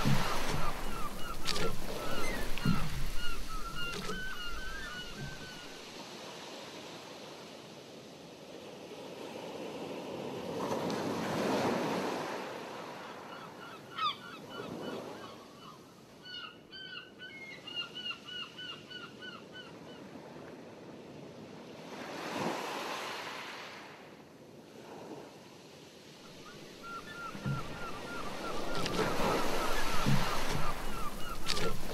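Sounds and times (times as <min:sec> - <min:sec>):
short repeated bird calls: 0:00.0 - 0:05.8
sea water washing: 0:00.0 - 0:06.0, 0:26.2 - 0:31.9.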